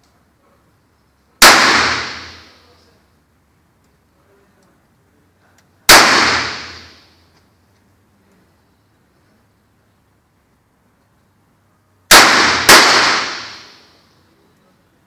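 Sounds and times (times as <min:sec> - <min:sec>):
revolver shots echoing: 0:01.4 - 0:02.5, 0:05.9 - 0:07.0, 0:12.1 - 0:13.8.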